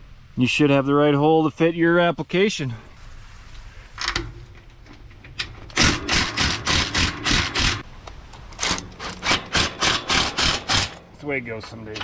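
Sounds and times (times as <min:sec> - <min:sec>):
impact driver rattling: 0:05.4 - 0:07.8, 0:08.6 - 0:11.1.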